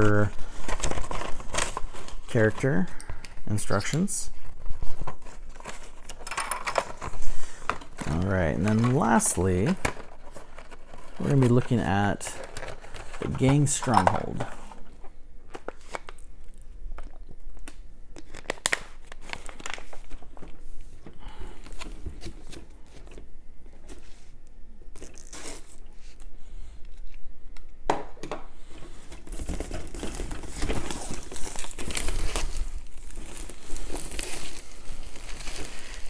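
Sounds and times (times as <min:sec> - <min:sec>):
plastic packaging tearing and crinkling: 0:00.0 - 0:02.9, 0:03.5 - 0:20.6, 0:24.9 - 0:26.2, 0:28.9 - 0:36.0.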